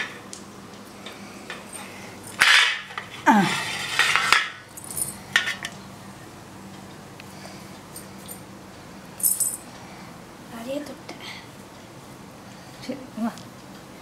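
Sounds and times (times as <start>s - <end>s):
dish clattering on tiled floor: 2.4s - 4.6s, 5.3s - 5.8s.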